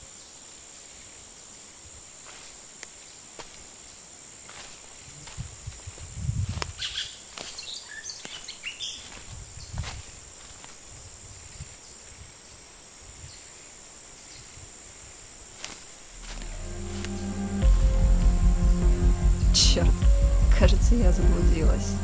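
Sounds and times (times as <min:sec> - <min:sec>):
high insect drone: 0:00.0 - 0:22.0
footsteps on dirt trail: 0:02.2 - 0:02.7, 0:03.3 - 0:03.7, 0:04.4 - 0:11.0, 0:15.6 - 0:21.4
bird chirps: 0:06.8 - 0:09.8.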